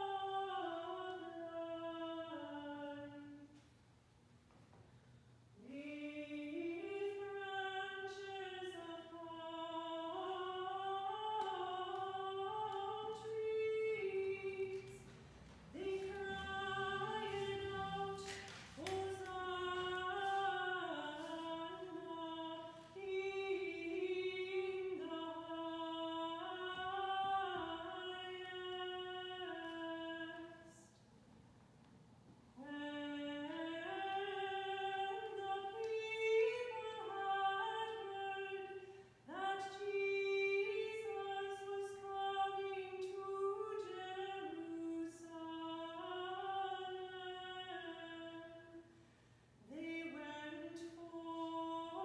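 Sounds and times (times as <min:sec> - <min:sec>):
unaccompanied chant singing: 0:15.8 - 0:29.4.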